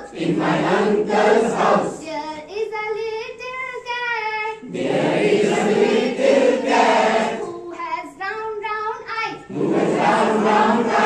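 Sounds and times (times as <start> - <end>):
group of voices singing: 0.0 - 2.2, 4.6 - 7.8, 9.5 - 11.0.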